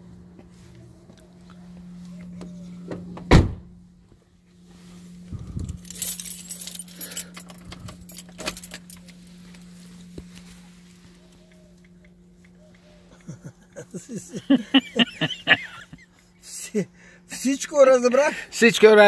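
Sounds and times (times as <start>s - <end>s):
steady low hum: 0.0s - 19.0s
metallic jingling and clinking: 5.5s - 10.1s.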